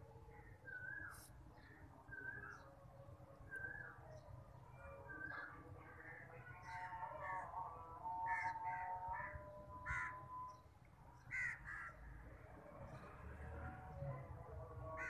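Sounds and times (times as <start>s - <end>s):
crows cawing: 8.3s - 10.2s, 11.3s - 12.0s.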